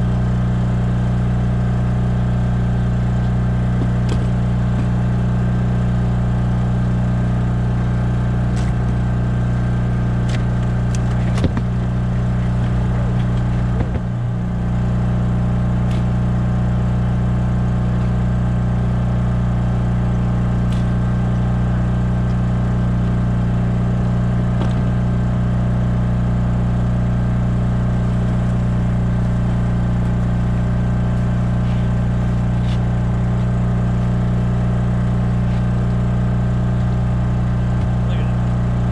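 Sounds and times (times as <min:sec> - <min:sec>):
generator humming: 0:00.0 - 0:38.9
gear knocking on boat: 0:03.2 - 0:05.1, 0:10.2 - 0:14.3.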